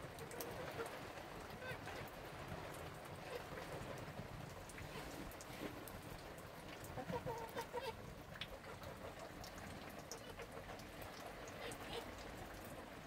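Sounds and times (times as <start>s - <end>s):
drips ticking: 0.0s - 13.0s
steady rain falling: 0.0s - 13.0s
hen clucking: 7.0s - 8.0s.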